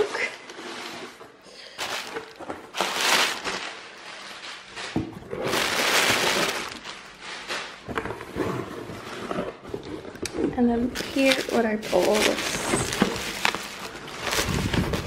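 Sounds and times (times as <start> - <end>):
bubble wrap shifting in cardboard box: 0.0 - 7.8, 10.9 - 15.0
packaging rustling and crinkling: 0.0 - 15.0.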